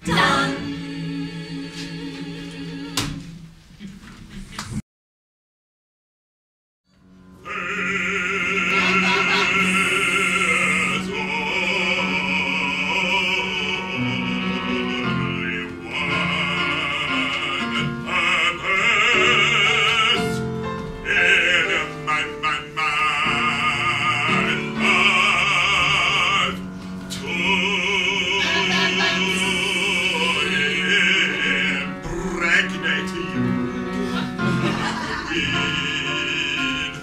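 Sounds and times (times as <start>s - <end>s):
operatic singing with vibrato: 0.0s - 3.5s, 7.4s - 37.0s
instrumental accompaniment: 7.0s - 12.8s.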